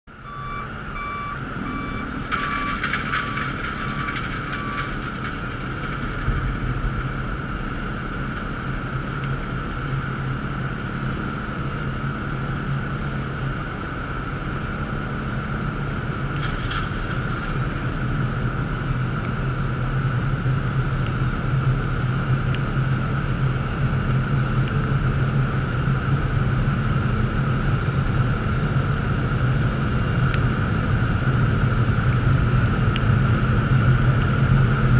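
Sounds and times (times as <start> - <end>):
milling machine engine drone: 0.1 - 34.9
backup alarm beeping: 0.2 - 4.9.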